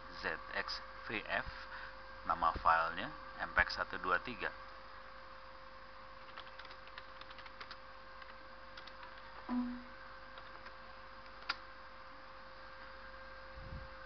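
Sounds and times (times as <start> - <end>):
steady electrical hum: 0.0 - 14.0
computer keyboard clicks: 6.2 - 9.3
brief low tone: 9.5 - 9.9.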